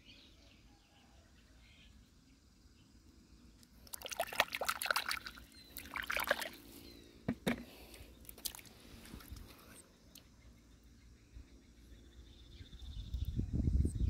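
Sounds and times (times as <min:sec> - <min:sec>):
water dripping: 0:03.8 - 0:06.5, 0:08.3 - 0:09.4
shallow water splashing: 0:03.8 - 0:06.8, 0:08.3 - 0:09.7.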